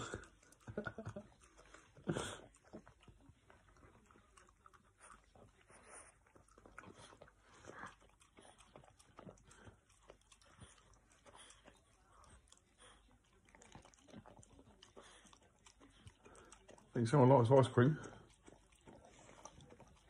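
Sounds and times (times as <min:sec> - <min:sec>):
dog licking wet smacking: 0:00.0 - 0:20.0.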